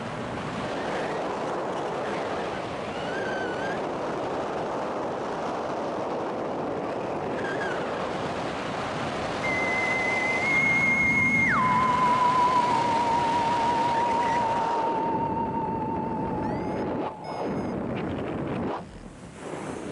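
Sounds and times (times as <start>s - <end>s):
wind on microphone: 0.0s - 19.9s
sustained wavering tone: 9.4s - 17.9s.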